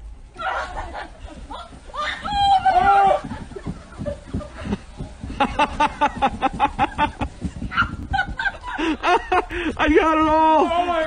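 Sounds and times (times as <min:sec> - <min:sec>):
person laughing hard: 0:08.0 - 0:09.8.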